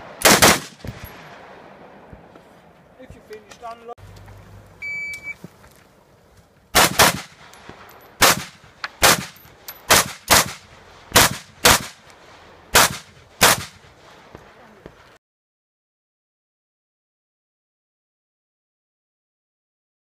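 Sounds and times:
rifle shots: 0:00.0 - 0:02.0, 0:06.7 - 0:12.0, 0:12.7 - 0:14.4.

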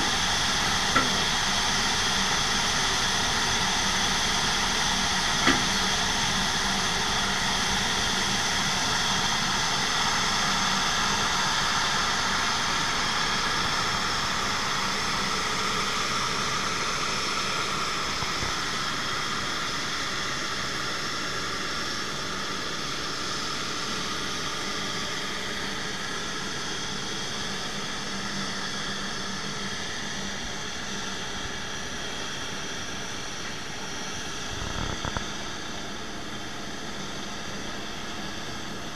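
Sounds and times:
tug engine low hum: 0:00.0 - 0:09.4
jet engines idling whine: 0:00.0 - 0:38.9.

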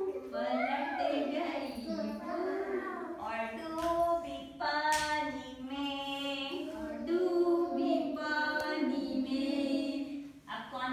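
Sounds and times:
woman and children singing: 0:00.0 - 0:10.9.

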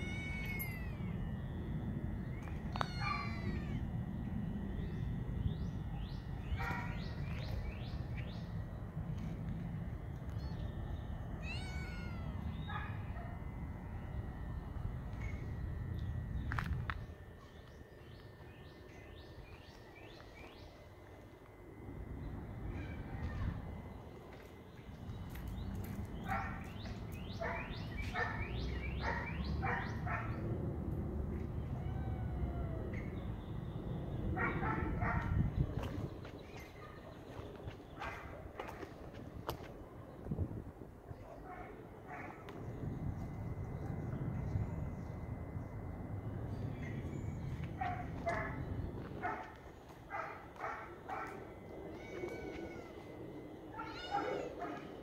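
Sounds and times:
cat chirping: 0:00.0 - 0:01.1, 0:02.7 - 0:03.8, 0:11.4 - 0:12.7
cat meowing: 0:00.0 - 0:01.1, 0:02.7 - 0:03.8, 0:11.4 - 0:12.7, 0:51.9 - 0:53.0, 0:53.8 - 0:54.6
dog barking: 0:06.6 - 0:07.0, 0:26.3 - 0:26.6, 0:27.4 - 0:30.4, 0:34.4 - 0:35.4, 0:38.0 - 0:38.3, 0:41.3 - 0:42.4, 0:47.8 - 0:48.6, 0:49.2 - 0:51.4, 0:53.8 - 0:54.9.

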